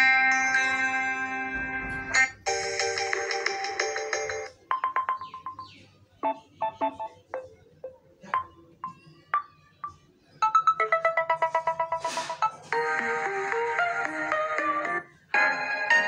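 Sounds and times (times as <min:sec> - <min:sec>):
ringtone melody: 0:00.0 - 0:16.0
phone ringtone chimes: 0:03.9 - 0:12.1.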